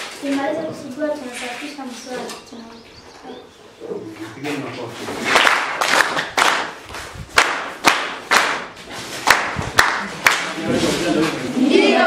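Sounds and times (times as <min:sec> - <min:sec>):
children clapping in rhythm: 0:05.3 - 0:10.6.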